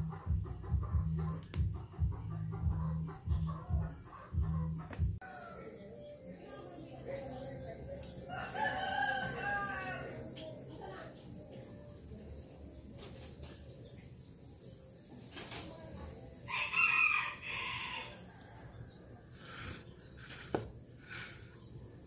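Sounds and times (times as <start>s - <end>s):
rooster crowing: 8.3s - 10.3s, 16.5s - 19.1s.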